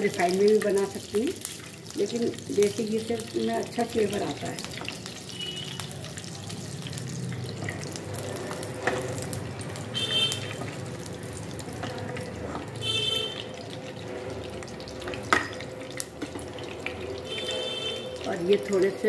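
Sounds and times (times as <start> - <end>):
ghee sizzling in a frying pan: 0.0 - 19.0.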